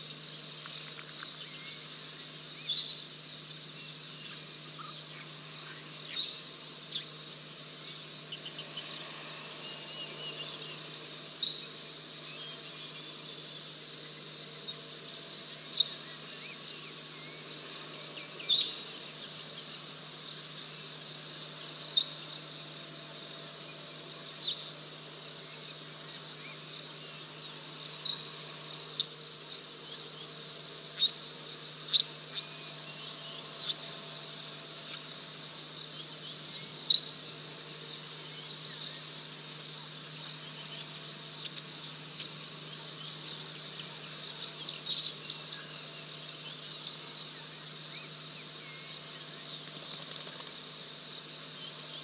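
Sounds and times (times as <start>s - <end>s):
high-pitched insect drone: 0.0s - 52.0s
low steady hum: 0.0s - 52.0s.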